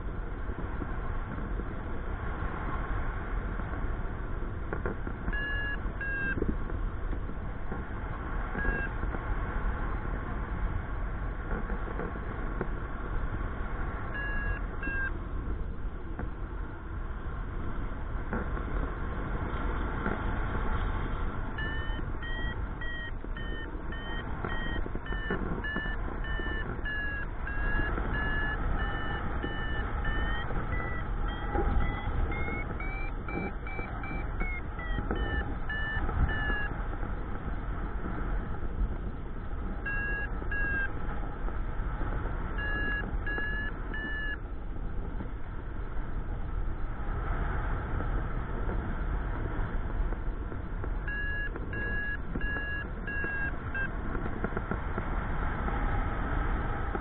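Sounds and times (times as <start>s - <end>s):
wind rushing over microphone: 0.0s - 57.0s
variometer beeping: 4.7s - 9.2s, 14.1s - 15.2s, 21.4s - 41.6s, 42.2s - 45.3s, 50.1s - 54.7s.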